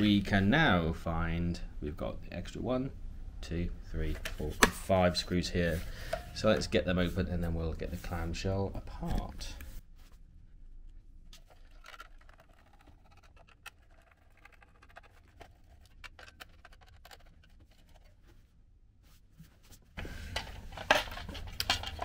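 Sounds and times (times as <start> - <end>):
plastic casing clicks and scrapes: 11.4 - 18.2.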